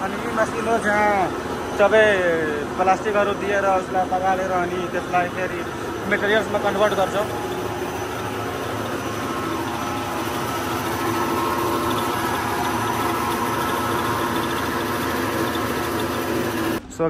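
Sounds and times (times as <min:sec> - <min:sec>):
steady machine tones: 0:00.0 - 0:16.8
factory machinery humming: 0:00.0 - 0:17.0.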